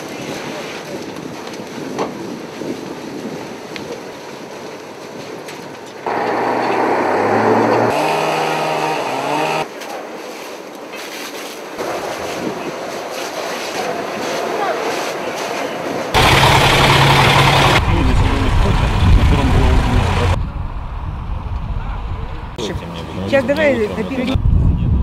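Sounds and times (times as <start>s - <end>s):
water hoses rushing: 6.0s - 10.3s, 11.0s - 20.4s
engine-like drone: 6.1s - 9.7s, 16.1s - 23.9s.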